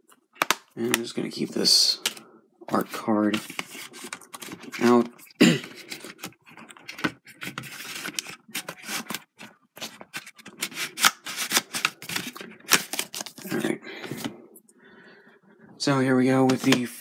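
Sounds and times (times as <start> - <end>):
plastic case clicks and scrapes: 3.4 - 13.4.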